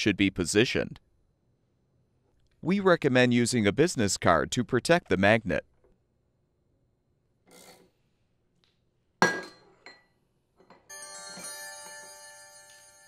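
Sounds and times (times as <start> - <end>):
bell-like chime ringing: 10.9 - 13.0.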